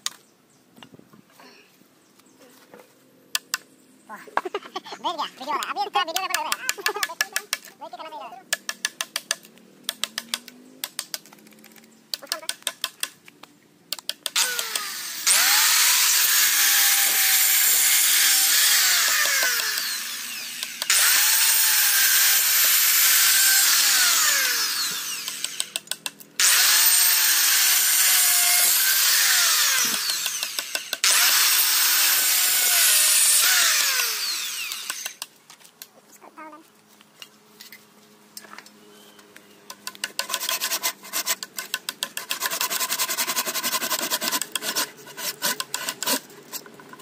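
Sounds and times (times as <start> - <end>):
electric planer shaving log: 14.4 - 25.8, 26.4 - 35.2.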